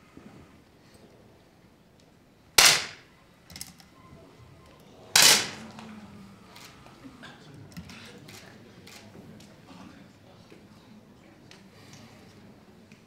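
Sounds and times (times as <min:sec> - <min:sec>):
air pistol shots: 0:02.6 - 0:03.1, 0:05.2 - 0:05.6
shot echo: 0:02.6 - 0:03.1, 0:05.2 - 0:05.8.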